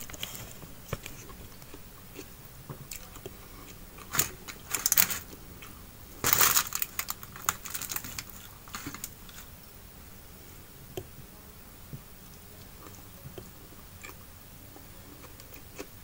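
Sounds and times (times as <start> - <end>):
aluminium foil crinkling: 0.0 - 1.7, 4.0 - 5.4, 6.2 - 9.5.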